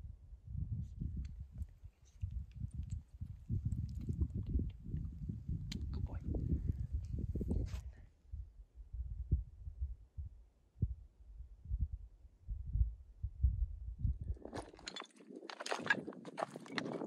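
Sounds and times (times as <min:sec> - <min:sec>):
footsteps on rocky ground: 0:14.4 - 0:17.0.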